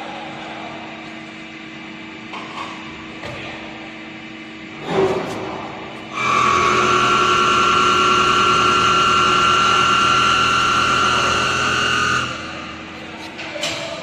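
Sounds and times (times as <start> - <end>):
lathe high-pitched whine: 6.1 - 13.1.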